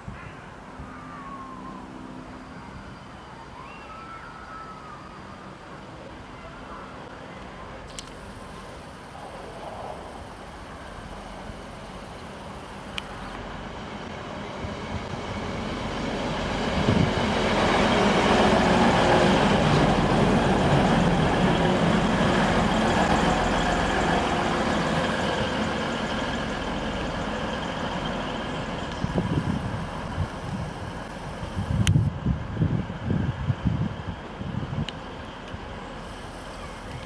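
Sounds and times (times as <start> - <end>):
diesel train passing: 0.0 - 37.0.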